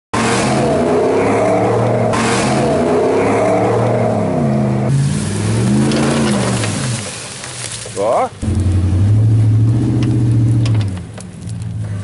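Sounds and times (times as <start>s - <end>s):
truck engines revving: 0.1s - 12.0s.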